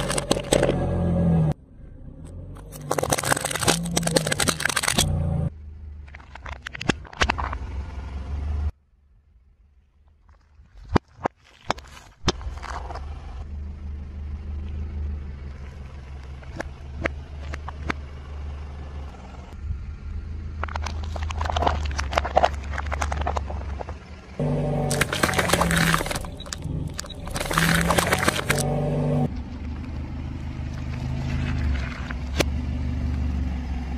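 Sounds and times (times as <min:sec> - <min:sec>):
tyre crushing objects: 0:00.0 - 0:00.8, 0:24.8 - 0:28.6
car engine idling: 0:12.8 - 0:33.9.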